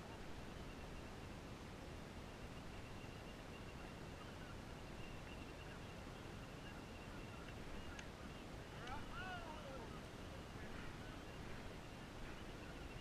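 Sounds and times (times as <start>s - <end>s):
light clicks: 7.4s - 8.2s.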